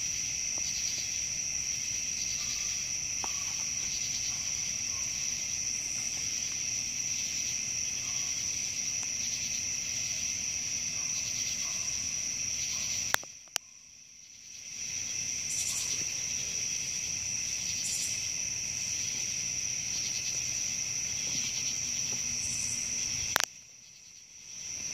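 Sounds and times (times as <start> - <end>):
night insects trilling: 0.0 - 24.9
sharp clicks: 23.3 - 23.5.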